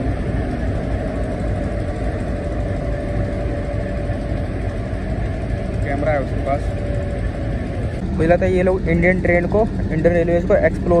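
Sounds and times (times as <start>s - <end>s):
diesel locomotive engine droning: 0.0s - 11.0s
faint steady whine: 0.0s - 11.0s.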